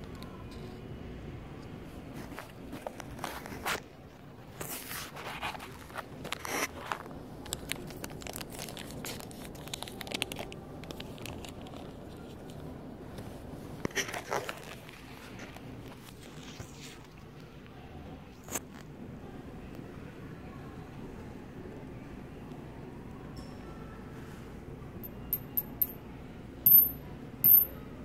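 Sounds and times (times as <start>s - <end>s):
plastic bags crinkling: 7.6s - 11.9s.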